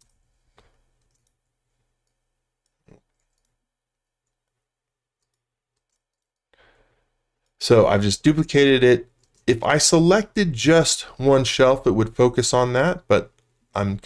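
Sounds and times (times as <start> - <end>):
soft computer clicks: 0.0 - 1.4, 9.1 - 9.5.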